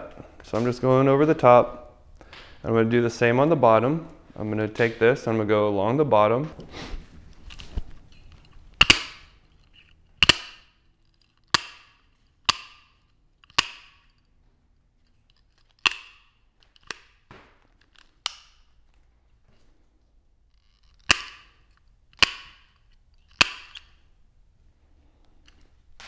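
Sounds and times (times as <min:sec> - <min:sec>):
tin snips cutting wire: 0:08.2 - 0:14.2, 0:15.3 - 0:17.1, 0:20.6 - 0:24.0.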